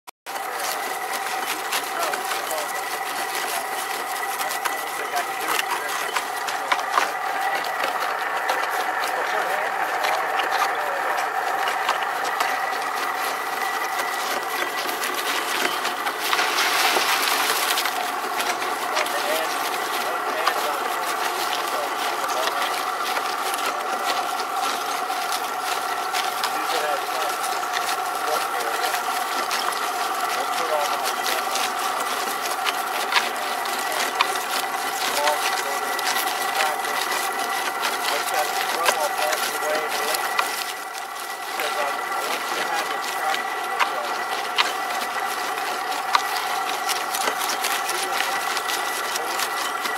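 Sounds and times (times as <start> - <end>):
charcoal being crushed: 0.3 - 49.9
grinder motor whine: 0.3 - 49.9.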